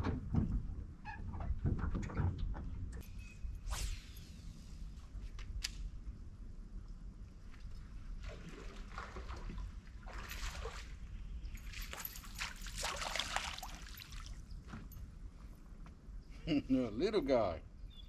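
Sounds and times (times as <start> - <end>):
fish splashing at water surface: 11.8 - 14.4.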